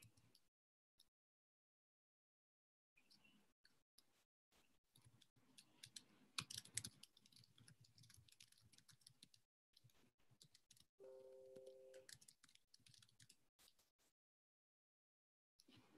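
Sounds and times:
keyboard typing and clicks: 0:05.0 - 0:13.4.

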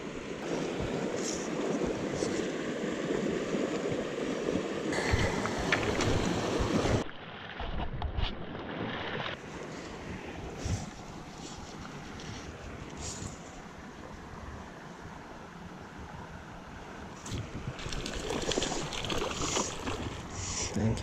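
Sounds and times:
rushing shallow river: 0:00.0 - 0:07.1, 0:13.6 - 0:20.7
footsteps on river cobbles: 0:17.8 - 0:20.3
low splashing steps: 0:17.8 - 0:20.3.

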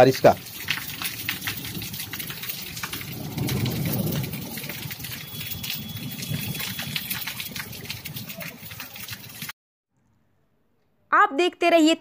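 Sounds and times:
heavy rain on concrete: 0:00.0 - 0:09.6.

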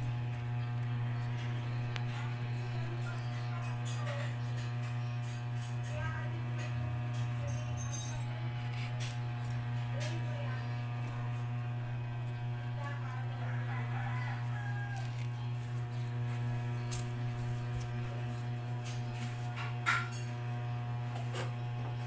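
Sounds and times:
electrical mains hum: 0:00.0 - 0:22.0
rooster crowing: 0:12.8 - 0:15.6.

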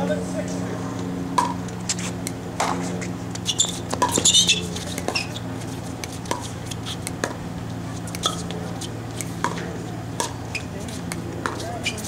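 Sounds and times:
steady low hum: 0:00.0 - 0:12.0
sneakers squeaking on hard court: 0:02.7 - 0:05.6, 0:08.0 - 0:10.8, 0:11.4 - 0:12.0.

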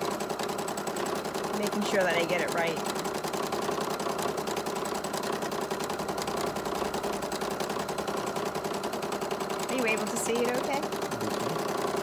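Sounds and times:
sewing machine running: 0:00.0 - 0:12.0.

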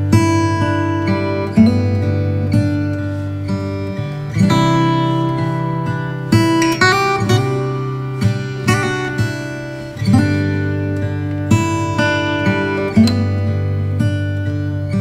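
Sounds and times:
acoustic guitar strumming chords: 0:00.0 - 0:15.0.

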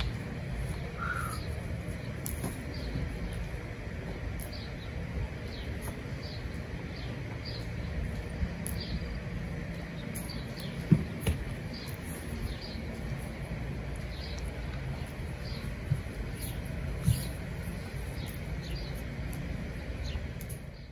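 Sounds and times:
steady low rumble: 0:00.0 - 0:20.9
small bird chirping: 0:00.7 - 0:01.6.

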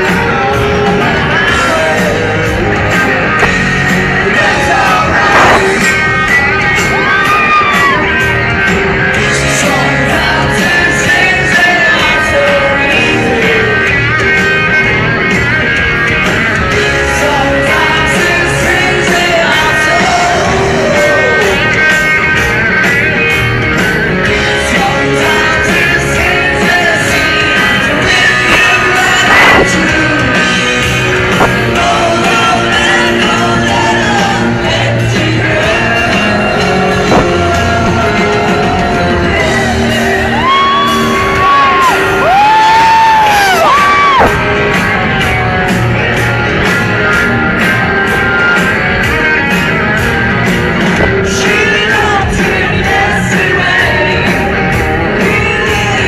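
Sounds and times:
person singing: 0:00.0 - 0:08.3, 0:09.2 - 0:14.2, 0:16.8 - 0:22.2, 0:24.4 - 0:44.2, 0:51.2 - 0:56.0
electric guitars: 0:00.0 - 0:56.0
steady drum beat: 0:00.0 - 0:56.0.

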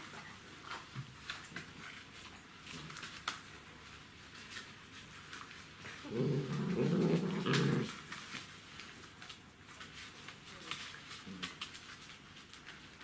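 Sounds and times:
dog growling low: 0:06.0 - 0:08.0.

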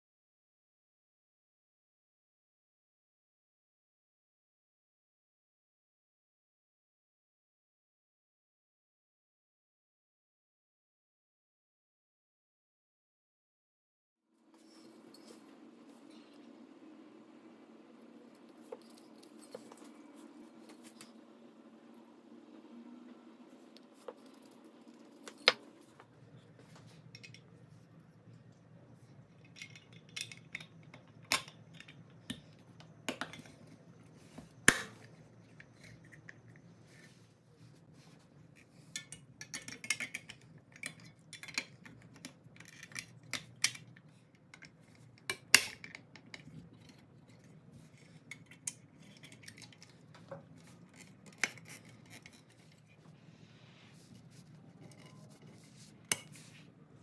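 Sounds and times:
faint low hum: 0:14.4 - 0:57.0.

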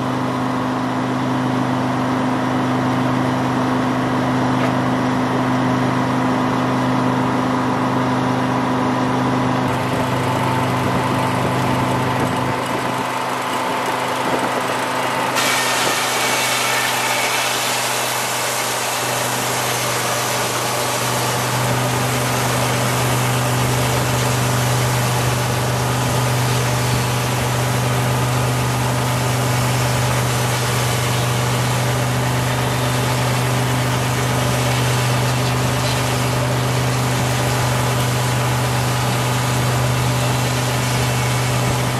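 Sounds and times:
diesel engine humming: 0:09.1 - 0:15.4
hiss: 0:15.4 - 0:21.4.

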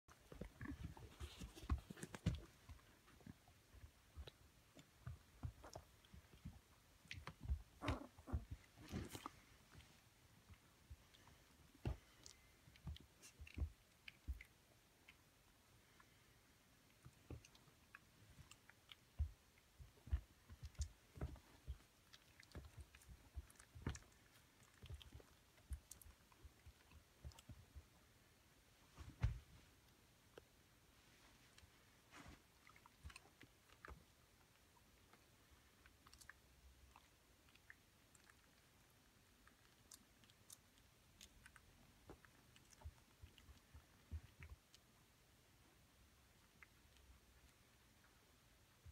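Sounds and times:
puppies playing soft thumps: 0:00.1 - 0:14.7, 0:16.9 - 0:34.2
puppies scrambling on blanket: 0:00.2 - 0:03.2, 0:07.2 - 0:10.0.

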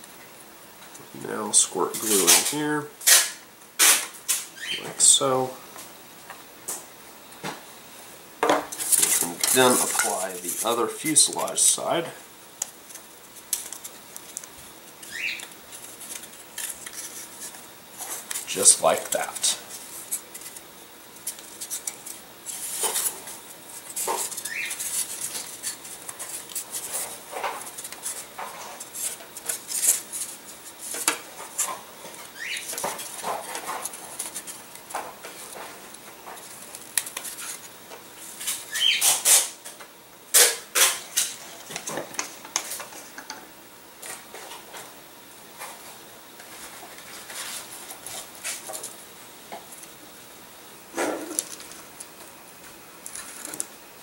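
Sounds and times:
rustling on paper: 0:08.7 - 0:11.8, 0:12.8 - 0:39.4, 0:45.6 - 0:49.0.

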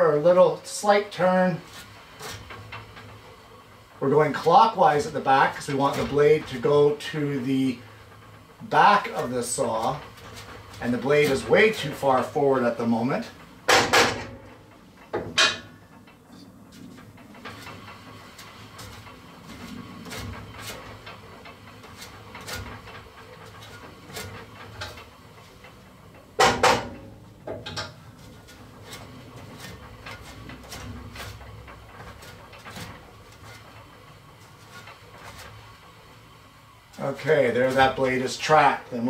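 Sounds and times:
bandsaw wheel clicking and humming: 0:00.0 - 0:39.0
loud sharp clack: 0:13.7 - 0:14.4.

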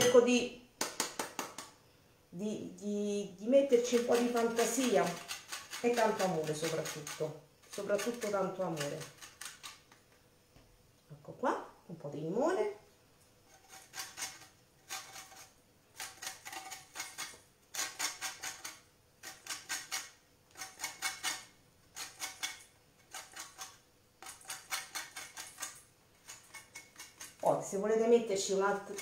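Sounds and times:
lemon rasping on grater: 0:03.7 - 0:09.8, 0:13.5 - 0:27.7, 0:28.7 - 0:29.0.

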